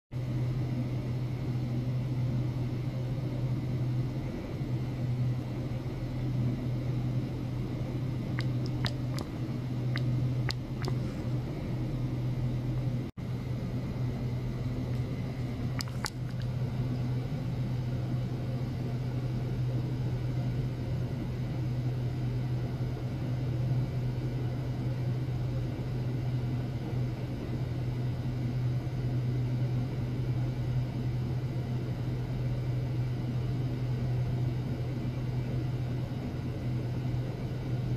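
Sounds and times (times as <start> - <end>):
low electrical hum: 0.2 - 37.9.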